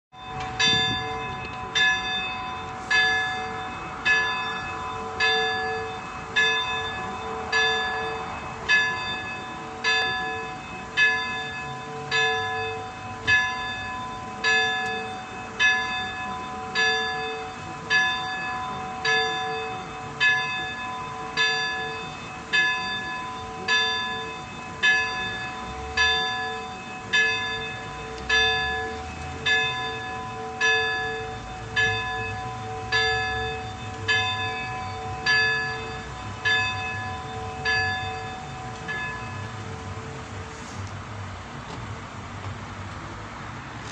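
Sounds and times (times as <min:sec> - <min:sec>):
small church bell tolling: 0:00.2 - 0:40.5.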